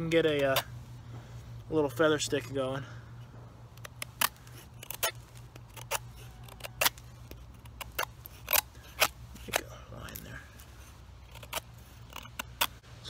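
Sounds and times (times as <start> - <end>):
knife scraping wood: 0.1 - 0.8, 3.7 - 12.9.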